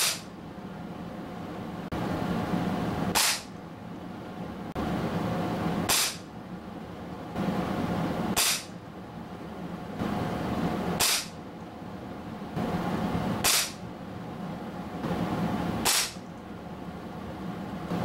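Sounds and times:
air rifle shots: 0:00.0 - 0:00.3, 0:03.1 - 0:03.5, 0:05.9 - 0:06.3, 0:08.3 - 0:08.8, 0:11.0 - 0:11.4, 0:13.4 - 0:13.8, 0:15.8 - 0:16.2.

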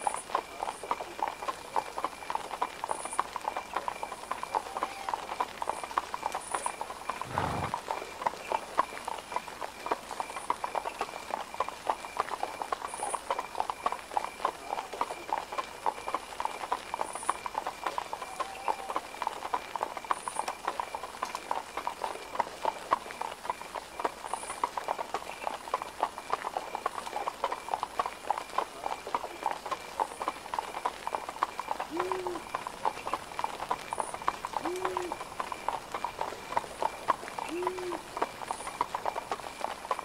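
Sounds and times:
horse hooves clip-clopping: 0:00.0 - 0:40.0.

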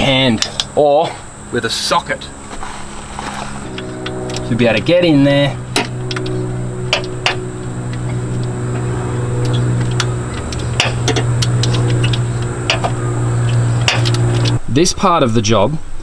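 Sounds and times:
steady low hum: 0:00.0 - 0:14.7
ratcheting spanner clicks: 0:00.4 - 0:00.8, 0:03.6 - 0:05.0, 0:05.7 - 0:14.6.

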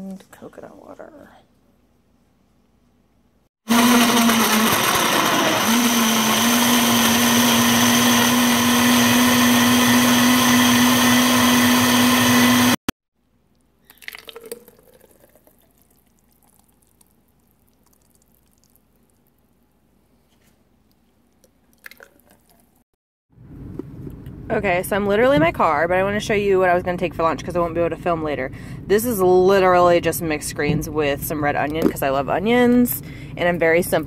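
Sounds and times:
blender motor running: 0:03.7 - 0:12.8.

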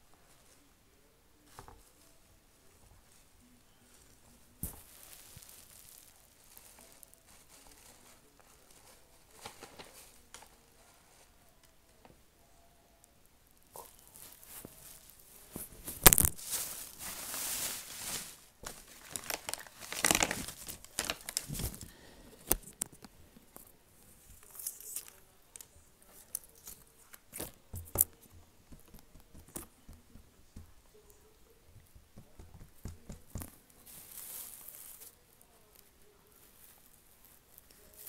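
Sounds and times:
tearing and crinkling: 0:04.6 - 0:10.6, 0:13.8 - 0:21.9, 0:24.3 - 0:28.2, 0:33.7 - 0:35.2.

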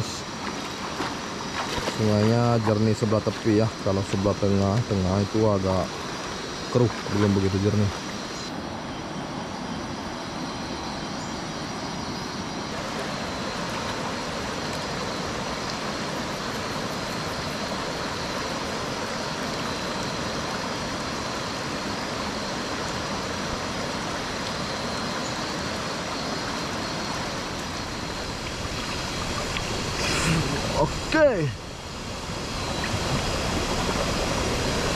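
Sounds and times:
river rushing over rocks: 0:12.5 - 0:34.9.

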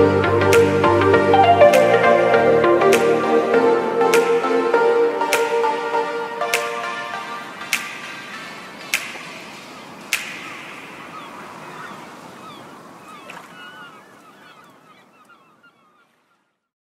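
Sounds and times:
tropical house music: 0:00.0 - 0:12.6.

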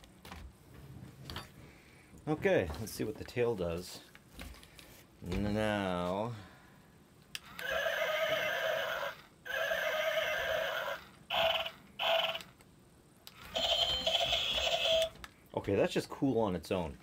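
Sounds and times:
toy speaker playing horse neighing: 0:07.4 - 0:12.5, 0:13.3 - 0:15.1.

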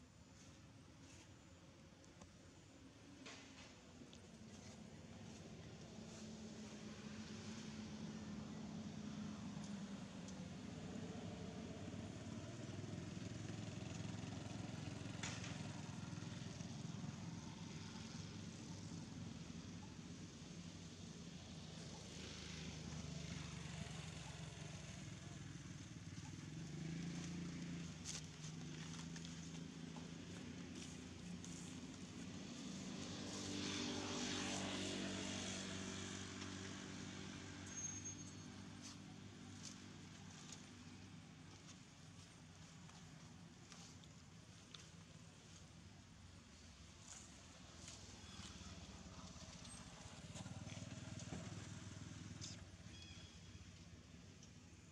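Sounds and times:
propeller aircraft overhead: 0:04.4 - 0:43.3.

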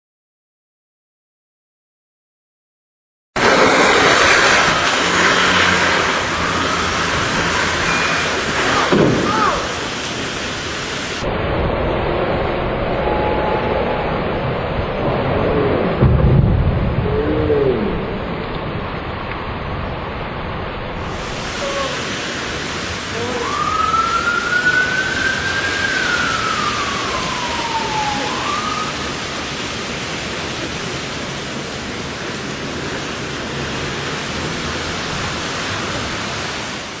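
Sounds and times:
heavy rain on a wet street: 0:03.4 - 0:37.0
long rising and falling tone: 0:11.1 - 0:19.3, 0:22.9 - 0:29.4.

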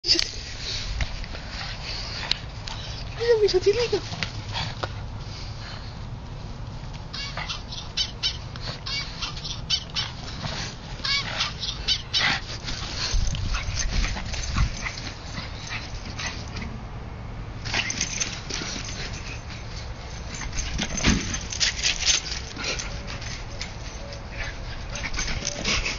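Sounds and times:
dog barking and yipping: 0:07.1 - 0:10.3, 0:11.0 - 0:12.6, 0:17.7 - 0:25.9.

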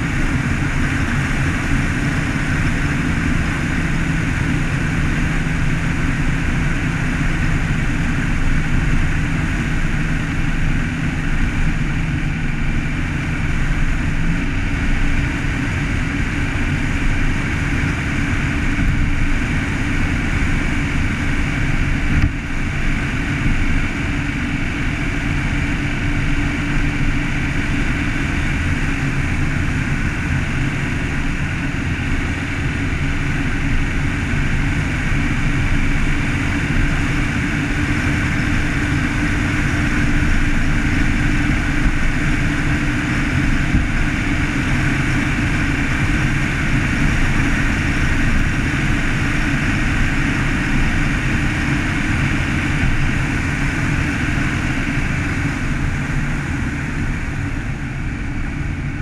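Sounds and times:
car engine and road rumble: 0:00.0 - 0:59.0.

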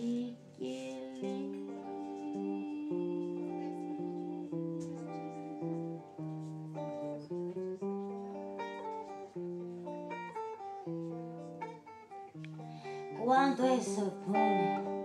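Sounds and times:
acoustic guitar tango: 0:00.0 - 0:15.0.

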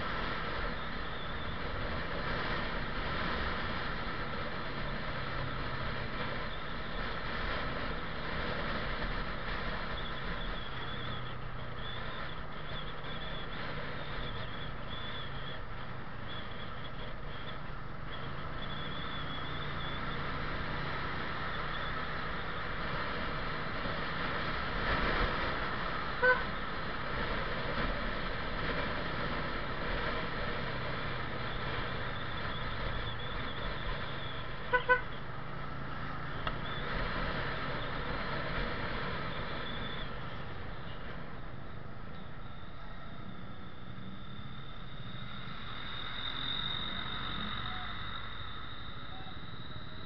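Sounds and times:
motorcycle engine riding: 0:00.0 - 0:45.9
road noise: 0:00.0 - 0:50.0
horn beeps: 0:26.2 - 0:26.5, 0:34.6 - 0:35.2.

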